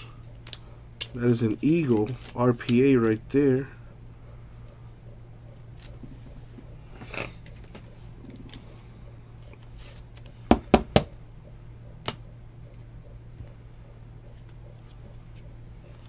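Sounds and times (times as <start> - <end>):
low steady hum: 0.0 - 16.0
soft handling rustle: 0.2 - 3.8.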